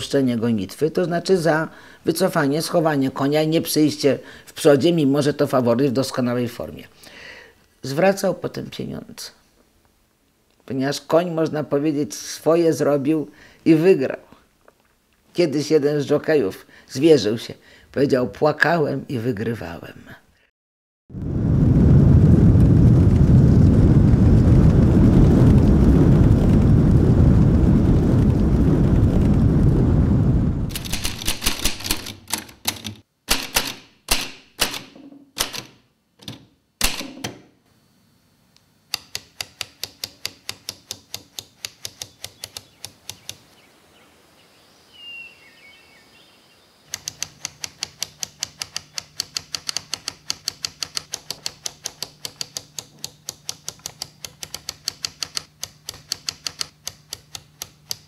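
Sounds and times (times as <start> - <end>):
typewriter typing: 30.7 - 35.8, 38.9 - 43.4, 46.9 - 58.0.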